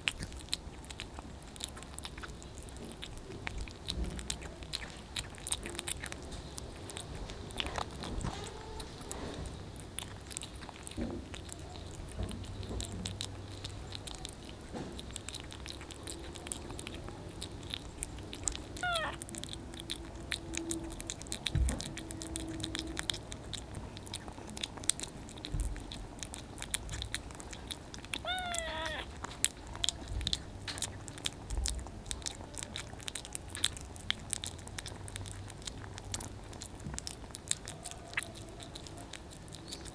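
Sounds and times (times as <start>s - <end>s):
kitten chewing wet food: 0.0s - 39.9s
kitten mewing: 4.0s - 39.9s.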